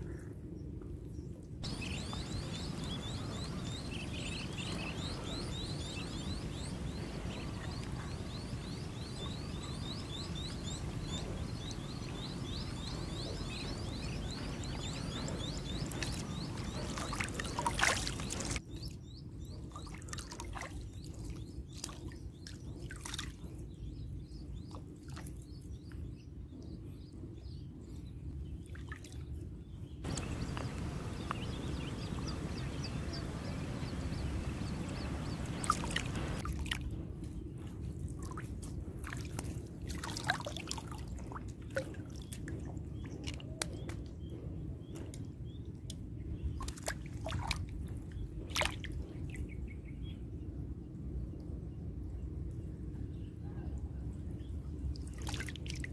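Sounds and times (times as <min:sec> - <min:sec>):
water drips and splashes: 0:01.6 - 0:18.6, 0:19.7 - 0:23.4, 0:30.1 - 0:37.0, 0:38.0 - 0:44.1, 0:45.9 - 0:49.4, 0:54.9 - 0:55.9.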